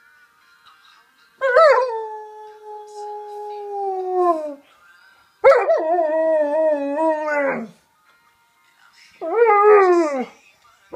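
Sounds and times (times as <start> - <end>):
dog howling: 5.5 - 7.7.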